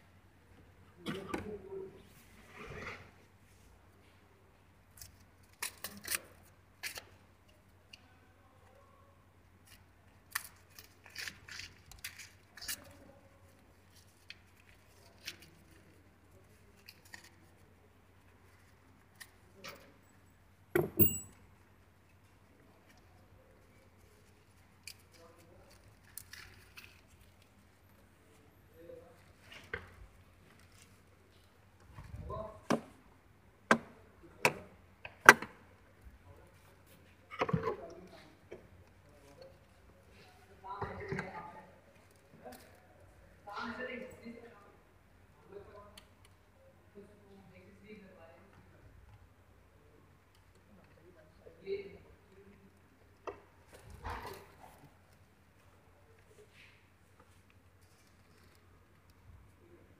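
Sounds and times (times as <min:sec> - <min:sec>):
hands handling small parts: 0:20.8 - 0:21.4.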